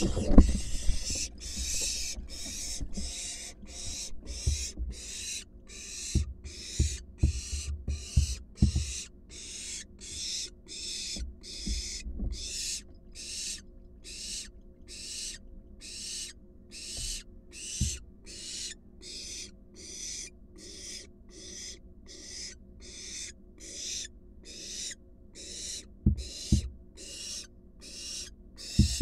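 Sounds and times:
loud thumps: 0:00.0 - 0:05.0
owl fledgling hissing: 0:00.0 - 0:29.0.

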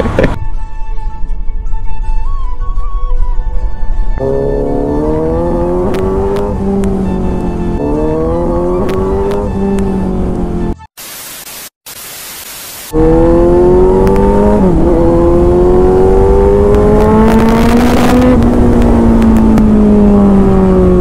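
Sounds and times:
motorcycle engine accelerating: 0:04.2 - 0:10.8, 0:12.9 - 0:21.0.

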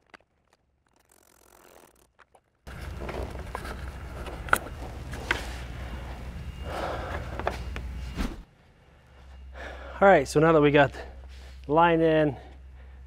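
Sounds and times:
low room hum: 0:02.7 - 0:13.0.

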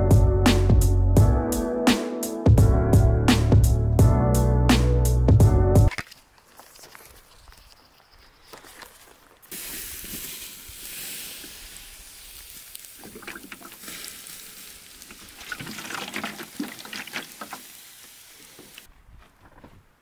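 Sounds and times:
embers popping and crackling: 0:08.4 - 0:18.9
water hissing on embers: 0:09.3 - 0:18.9.

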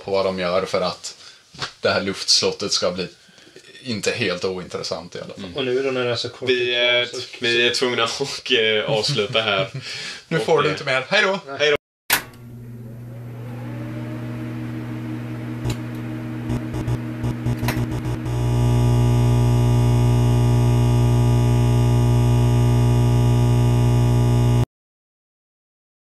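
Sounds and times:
electrical mains hum: 0:12.2 - 0:24.6
neon sign buzz: 0:14.4 - 0:24.7
crackling clicks: 0:15.6 - 0:24.6.

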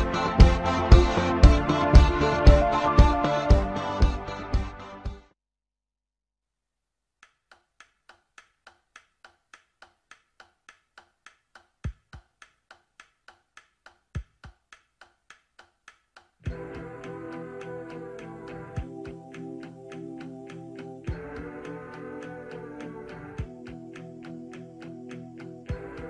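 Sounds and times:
background music: 0:00.0 - 0:05.3, 0:16.5 - 0:26.0
ticking beat: 0:00.0 - 0:05.3, 0:07.2 - 0:26.0.

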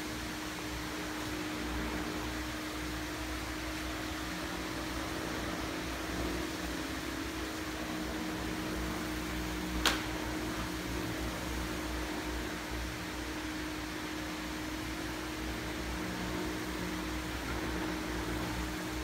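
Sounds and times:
ventilation fan hum: 0:00.0 - 0:19.0
sharp click: 0:09.8 - 0:10.1.

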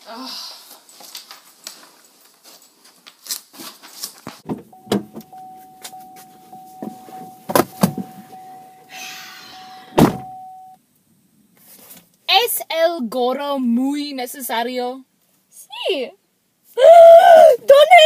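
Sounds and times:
knocks and thumps of person getting in: 0:04.3 - 0:08.4, 0:09.9 - 0:10.6
car door slamming: 0:04.4 - 0:05.4, 0:06.8 - 0:08.4, 0:09.9 - 0:10.5
car warning chime: 0:04.7 - 0:10.8.

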